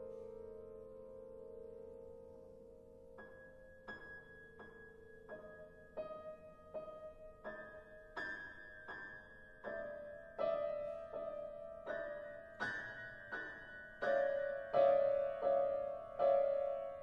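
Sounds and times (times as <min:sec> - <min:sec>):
piano playing chords: 0:00.0 - 0:17.0.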